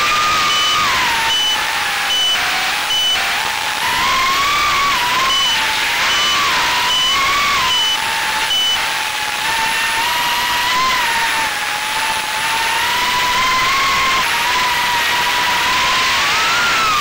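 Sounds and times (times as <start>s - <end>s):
drone motors whining: 0.0s - 17.0s
short high beeps: 0.5s - 3.3s, 4.9s - 8.9s.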